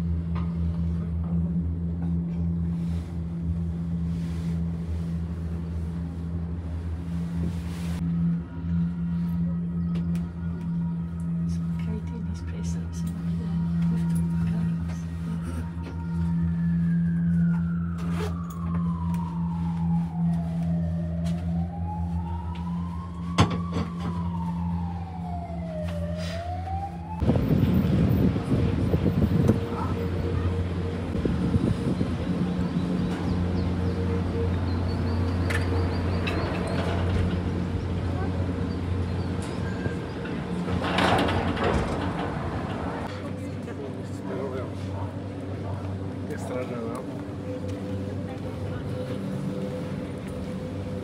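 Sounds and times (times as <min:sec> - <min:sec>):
low hum: 0:00.0 - 0:51.0
siren wailing: 0:08.0 - 0:43.1, 0:45.9 - 0:51.0
wind-like noise: 0:27.0 - 0:29.9
loud rumble: 0:27.1 - 0:43.1.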